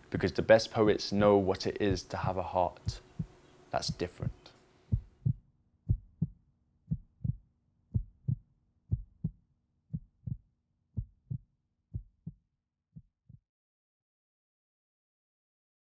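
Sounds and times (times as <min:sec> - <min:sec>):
heartbeat thumping: 0:02.8 - 0:12.4, 0:13.0 - 0:13.4.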